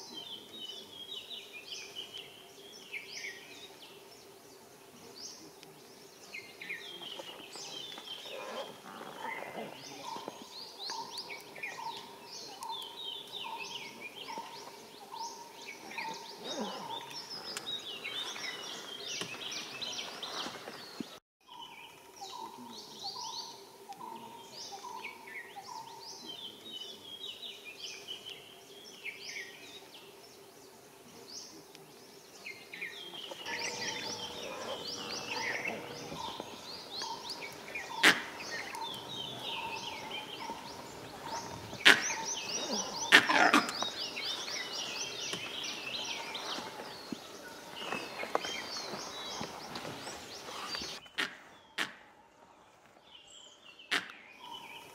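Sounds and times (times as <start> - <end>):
forest birds chirping: 0.0 - 54.9
low repeated bird call: 33.0 - 52.7
faint steady hum: 33.3 - 41.3.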